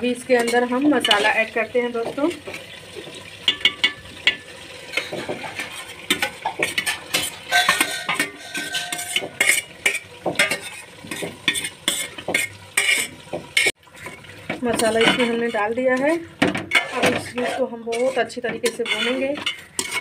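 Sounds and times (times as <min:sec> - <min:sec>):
chicken sizzling in oil: 0:00.0 - 0:20.0
spoon scraping a bowl: 0:04.9 - 0:13.8, 0:16.7 - 0:20.0.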